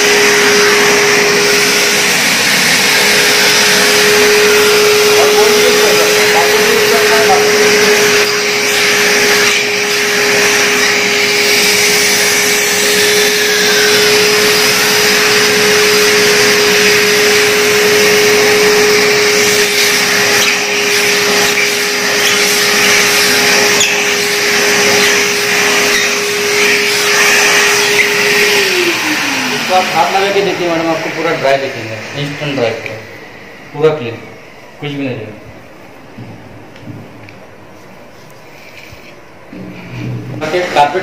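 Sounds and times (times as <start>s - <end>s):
vacuum cleaner motor: 0.0s - 41.0s.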